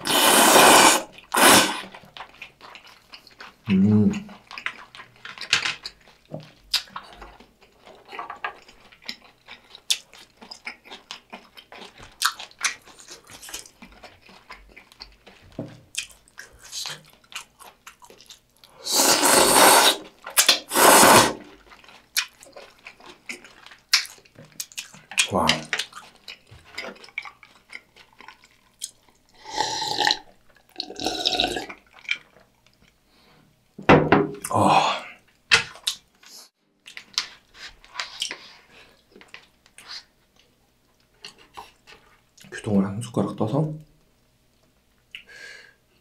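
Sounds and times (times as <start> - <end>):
noodles being slurped: 0.0 - 3.6, 18.8 - 32.4
soft squishy scraping: 36.2 - 42.3.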